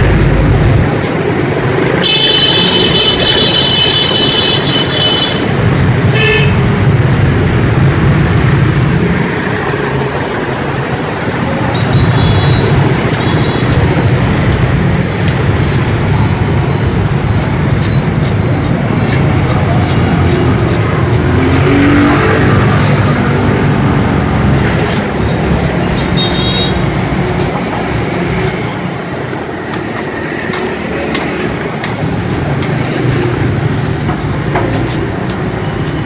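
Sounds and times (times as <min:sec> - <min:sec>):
motorbikes passing: 0:00.0 - 0:36.0
vehicle horn honking: 0:02.0 - 0:05.5, 0:06.1 - 0:06.6, 0:26.2 - 0:26.8.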